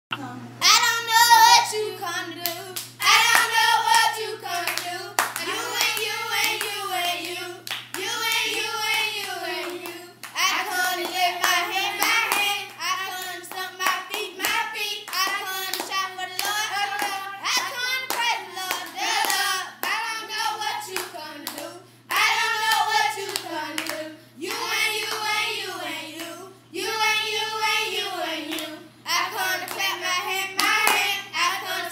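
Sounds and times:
children clapping hands: 9.3 - 20.0.

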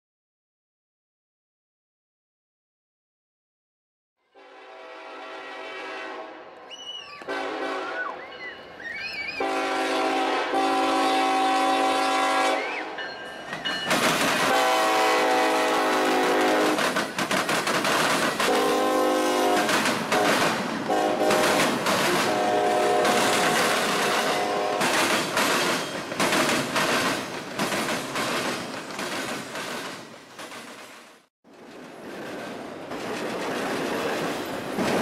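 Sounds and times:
locomotive air horn blasts: 4.3 - 8.4, 9.4 - 13.0, 14.4 - 16.8, 18.5 - 25.0
freight train rumble and wheel clatter: 8.2 - 35.0.

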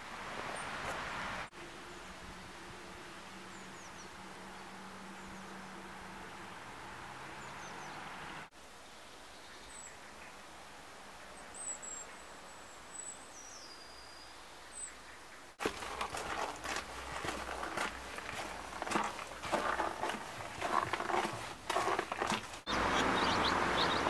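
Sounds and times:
footsteps on snowy path: 15.6 - 23.9.

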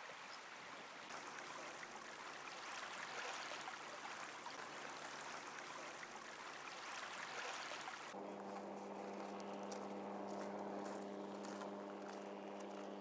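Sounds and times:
small waves lapping on shore: 0.0 - 13.0.

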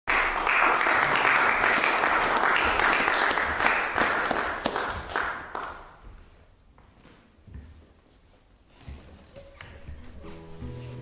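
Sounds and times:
audience applauding: 0.1 - 5.9.

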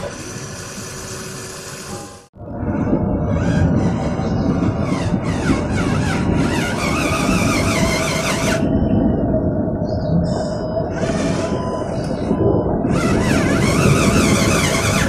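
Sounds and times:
toy truck motor rumble: 0.0 - 2.3, 4.8 - 8.6, 10.9 - 11.8, 12.9 - 15.0
high motor whine: 0.0 - 15.0.

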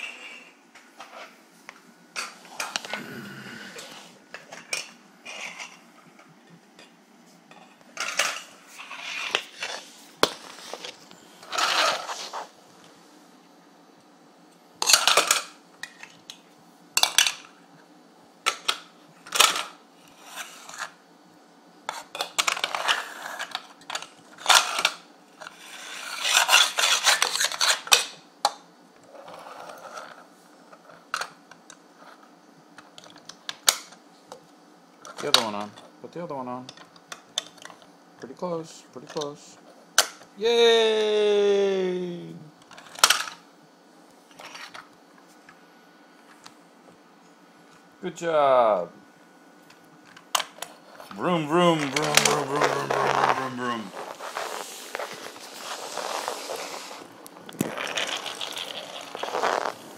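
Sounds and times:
plastic toy parts clattering: 14.8 - 16.2, 22.0 - 28.1, 57.5 - 59.7.

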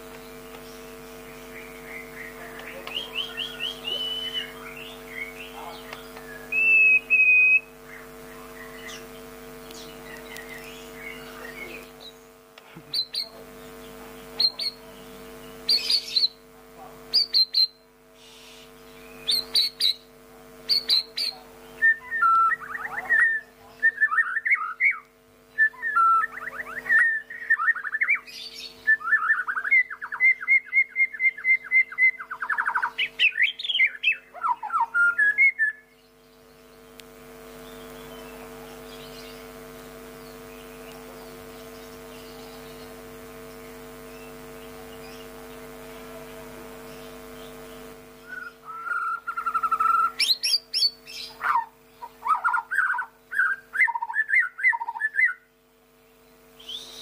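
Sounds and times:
bird singing whistles and trills: 1.3 - 9.0, 20.7 - 36.1, 48.2 - 55.4, 56.6 - 57.0.

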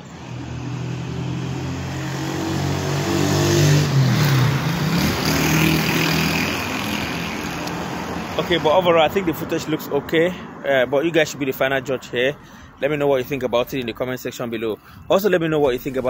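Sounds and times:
vehicle engine accelerating: 0.1 - 8.6.

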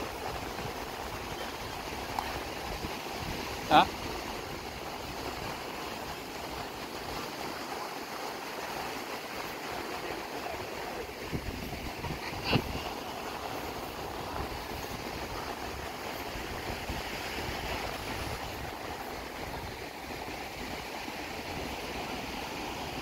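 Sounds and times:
ocean surf breaking on beach: 0.0 - 23.0.

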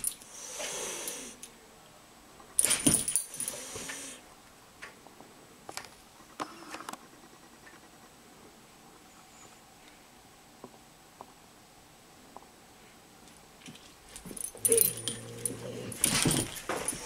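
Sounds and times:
cat hissing: 0.4 - 1.4
collar tags jingling: 14.1 - 17.0.

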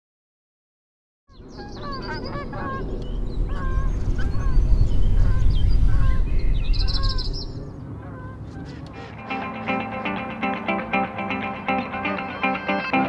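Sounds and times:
low rumble: 2.2 - 7.9
geese honking: 7.9 - 13.0.

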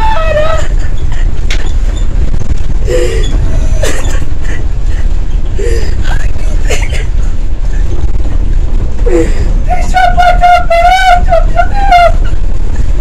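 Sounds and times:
woman sobbing: 0.0 - 1.4, 2.8 - 7.2
vehicle rumble: 0.0 - 13.0.

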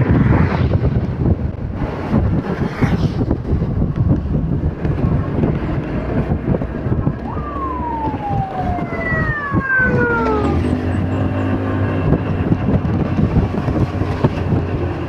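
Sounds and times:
motorcycle engine rumble: 0.0 - 15.0
wind buffeting: 0.0 - 15.0
high whines gliding down: 6.2 - 13.4.

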